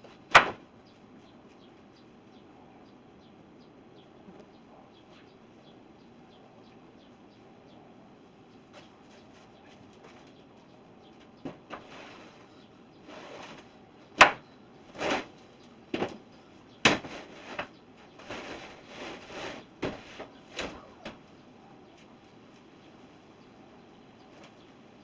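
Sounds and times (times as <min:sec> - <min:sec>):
wooden lumber knocks and thuds: 0:00.0 - 0:00.7, 0:11.4 - 0:11.9, 0:15.9 - 0:16.2, 0:16.8 - 0:17.7
scraping and shuffling: 0:08.6 - 0:13.9, 0:14.8 - 0:23.3.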